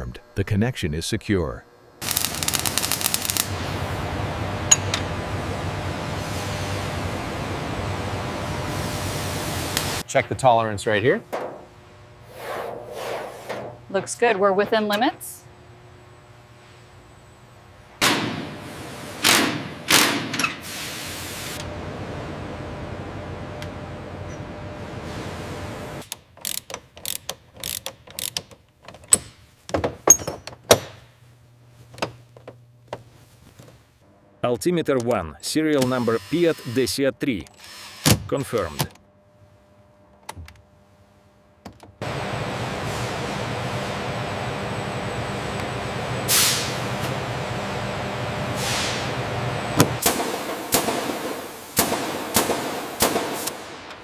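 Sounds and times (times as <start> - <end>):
steady low hum: 0.0 - 20.2, 28.7 - 54.0
ratchet wrench clicking: 26.0 - 28.5.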